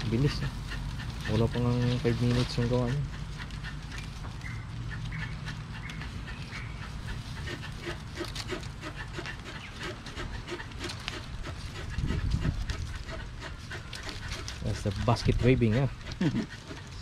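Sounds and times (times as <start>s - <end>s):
palm leaves rustling and crackling: 0.0s - 17.0s
rhythmic panting: 0.0s - 17.0s.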